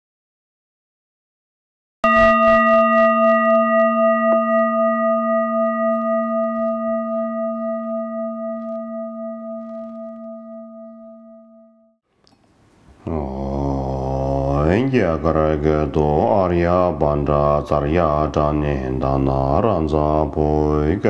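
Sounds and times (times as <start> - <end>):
singing bowl ringing: 2.0 - 12.0.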